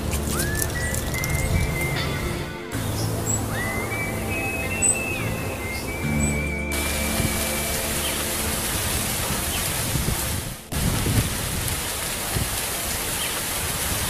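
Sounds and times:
heavy rain hiss: 0.0 - 14.0
low thunder rumbles: 6.6 - 12.6.

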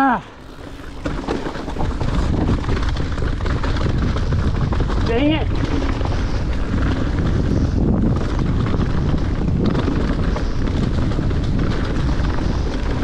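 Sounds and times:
bike rattling over bumps: 0.0 - 13.0
tyres crunching on stones: 0.4 - 13.0
wind buffeting microphone: 0.4 - 13.0.

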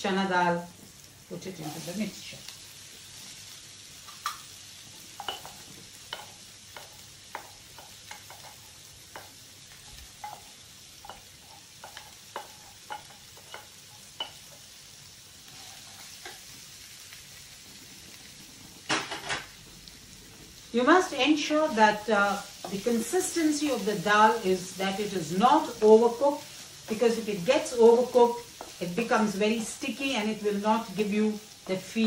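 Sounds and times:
oil sizzling in a pan: 0.0 - 32.0
wooden spatula knocking and scraping: 5.2 - 14.6, 26.8 - 29.9.

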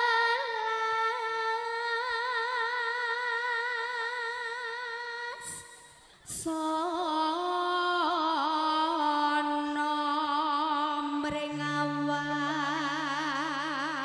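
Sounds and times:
woman singing unaccompanied: 0.0 - 14.0
woman breathing: 5.4 - 6.3.

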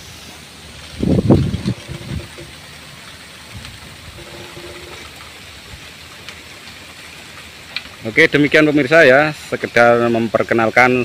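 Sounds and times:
strong wind through foliage: 0.0 - 11.0
wind buffeting microphone: 0.8 - 2.6.

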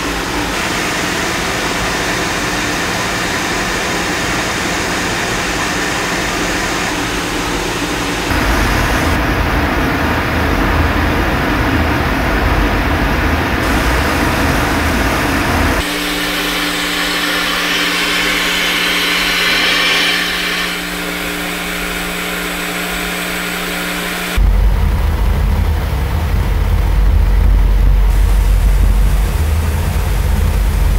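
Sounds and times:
boiler burner and fan running: 0.0 - 30.9
deep rumble: 8.3 - 15.9, 24.4 - 30.9
hiss: 13.6 - 24.4, 28.1 - 30.9.

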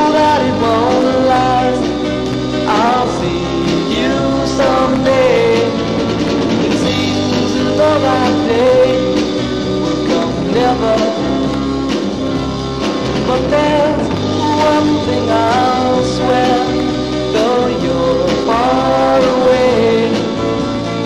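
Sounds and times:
person singing: 0.0 - 2.0, 2.6 - 6.0, 6.6 - 11.8, 13.2 - 21.0
garage-band ballad on record: 0.0 - 21.0.

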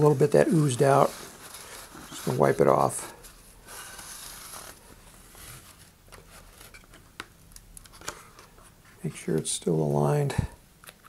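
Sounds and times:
paper towel rustling: 0.0 - 6.8.

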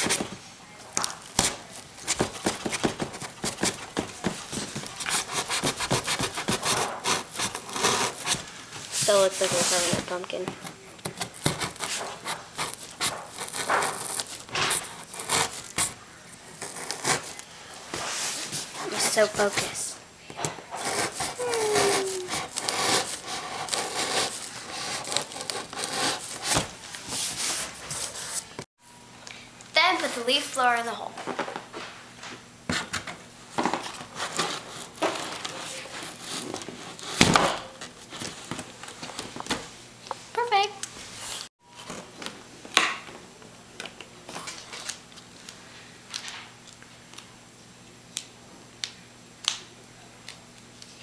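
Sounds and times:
knife sawing through cardboard: 4.8 - 8.4, 11.3 - 15.8, 20.8 - 26.7.

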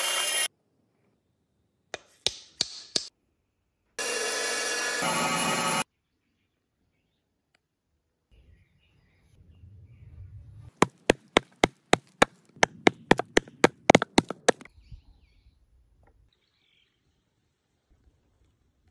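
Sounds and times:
adze chopping wood: 10.8 - 14.7.

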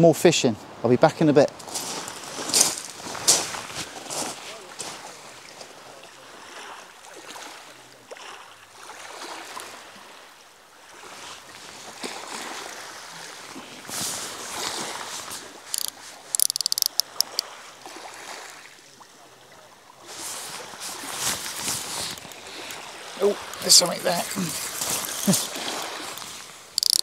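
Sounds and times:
waves washing over shingle: 1.5 - 10.3, 10.9 - 18.8, 20.0 - 27.0
quick run of sharp clicks: 15.8 - 17.4, 26.8 - 27.0.

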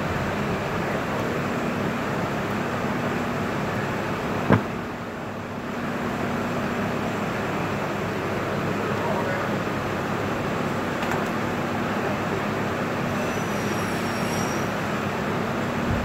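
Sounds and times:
workshop hum: 3.3 - 5.6.

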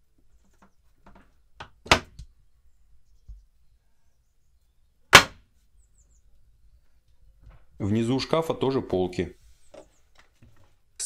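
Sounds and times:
wooden locker doors knocking shut: 1.6 - 2.2.

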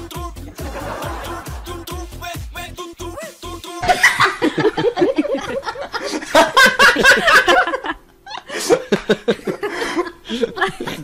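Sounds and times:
people laughing: 0.5 - 1.9, 3.8 - 11.0.

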